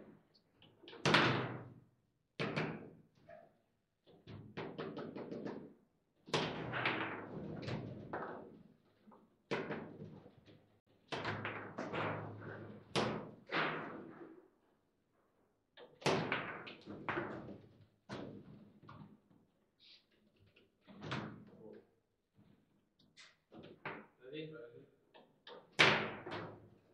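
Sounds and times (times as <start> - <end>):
table football clacks and bangs: 0.8 - 1.8, 2.4 - 3.2, 4.1 - 14.4, 15.8 - 19.2, 25.2 - 26.9.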